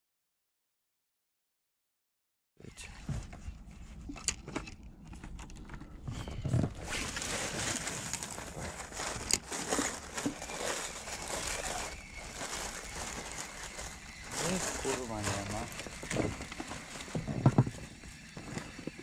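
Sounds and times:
fishing reel whirring: 9.2 - 18.9.

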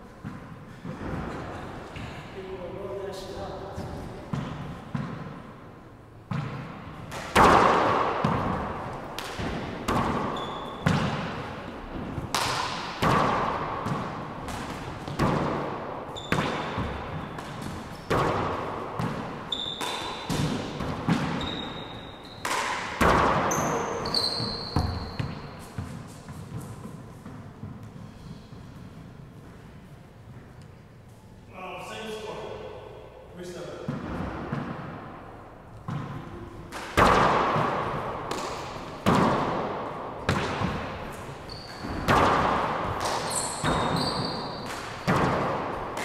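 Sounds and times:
rubber ball hits echoing: 6.3 - 26.6, 35.8 - 46.0
sneaker squeaks on hardwood floor: 10.0 - 11.1, 16.1 - 18.4, 19.2 - 28.8, 41.1 - 42.3, 43.0 - 45.3.

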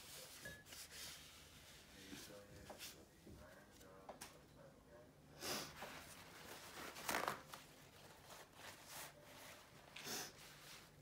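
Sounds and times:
hands rustling and crinkling materials: 5.8 - 11.0.

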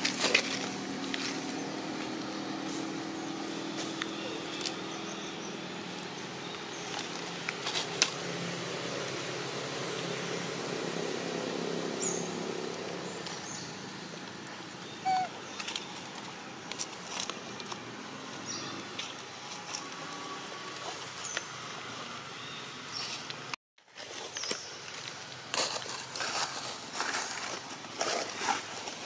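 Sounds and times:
high chirps: 14.8 - 15.3.

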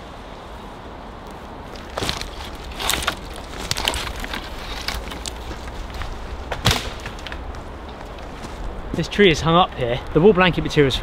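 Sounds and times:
dry wood cracking and snapping: 1.7 - 8.3.

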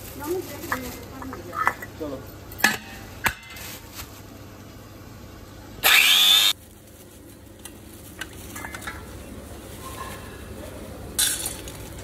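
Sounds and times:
electric spice grinder grinding seeds: 5.8 - 6.6.

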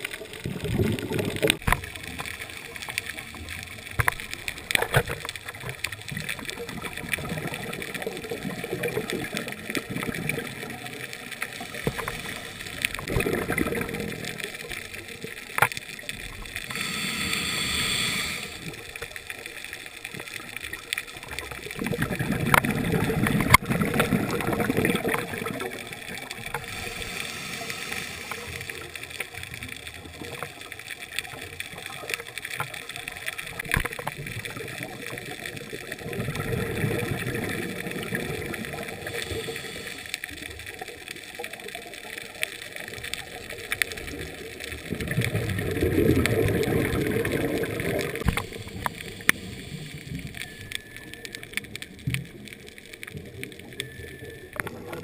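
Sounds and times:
steady underwater hiss: 0.0 - 55.0
diver's breath bubbling underwater: 11.6 - 14.4, 21.8 - 28.9, 44.9 - 50.4.

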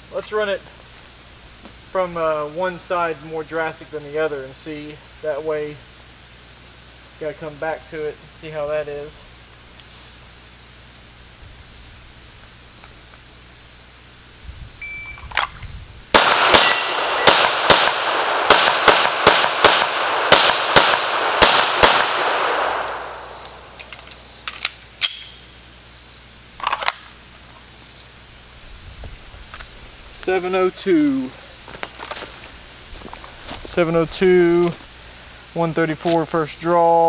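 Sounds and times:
shot timer beep: 14.8 - 15.2
rapid pistol shots with echo: 16.1 - 23.8.

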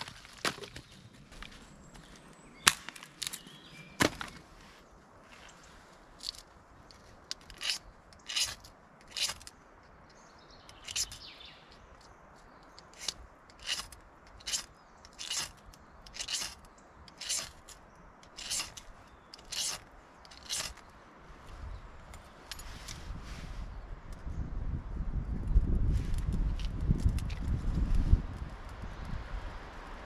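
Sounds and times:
short scraping strokes: 7.4 - 9.5, 10.8 - 11.3, 12.8 - 20.8.

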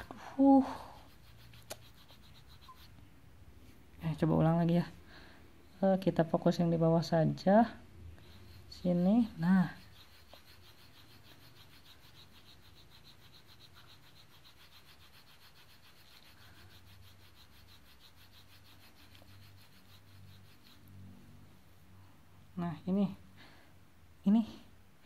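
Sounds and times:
fingertip rubbing on glass: 0.8 - 3.0, 8.2 - 21.0.

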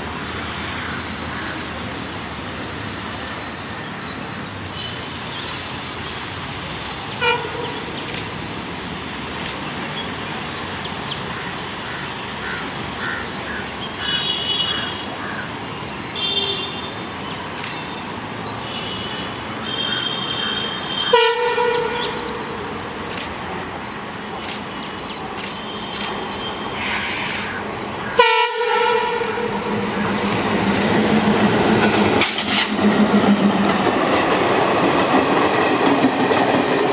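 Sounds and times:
diesel locomotive engine: 0.0 - 36.9
locomotive horn: 7.2 - 7.8, 18.9 - 22.2, 28.1 - 29.7.

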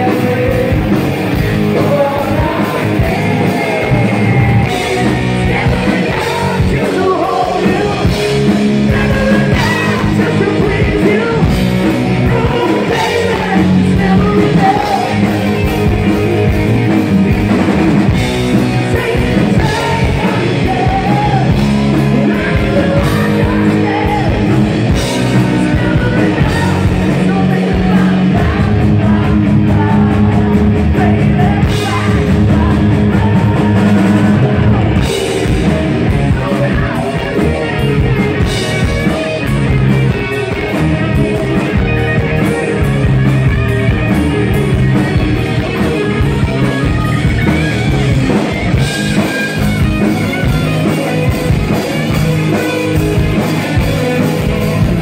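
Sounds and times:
male singer: 0.0 - 16.5, 18.5 - 39.4
distorted electric guitar: 0.0 - 55.0
drums: 0.0 - 55.0.

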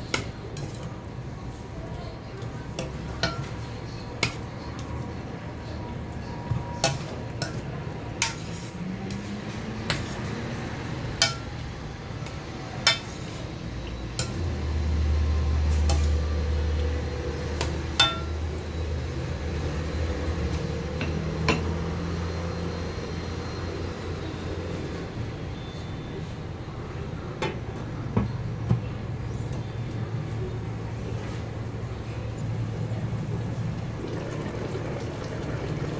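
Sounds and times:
metal spoon stirring in a pan: 0.0 - 1.1, 2.6 - 5.2, 6.5 - 14.6, 15.7 - 16.4.

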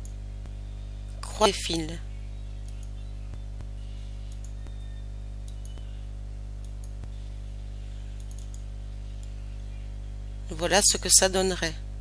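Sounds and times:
steady electrical hum: 0.0 - 12.0
computer mouse clicks: 2.6 - 6.0, 6.6 - 7.2, 8.2 - 9.4.

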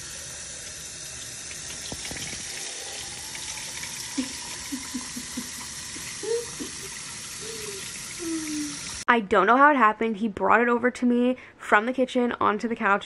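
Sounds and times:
faucet running into glass jar: 0.0 - 9.0
water splashing on glass lid: 1.5 - 4.7.

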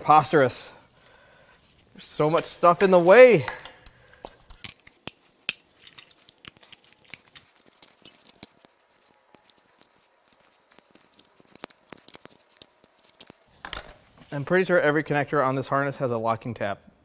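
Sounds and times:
plastic connectors clicking and rattling: 7.6 - 13.9.

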